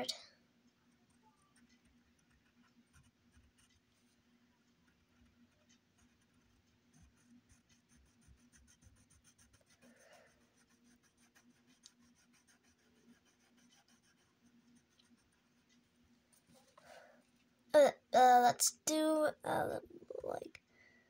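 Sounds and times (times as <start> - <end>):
pencil scratching on paper: 1.4 - 4.2, 4.9 - 16.1.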